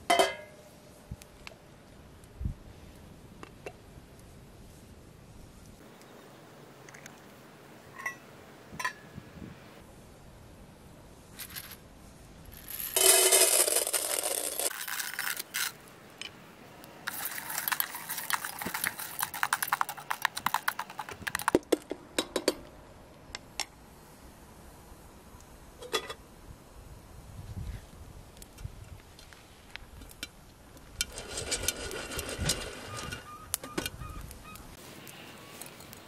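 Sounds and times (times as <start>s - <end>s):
kernels pouring into metal pan: 12.6s - 15.8s, 17.1s - 21.0s
kernels clicking in pan: 17.1s - 21.6s.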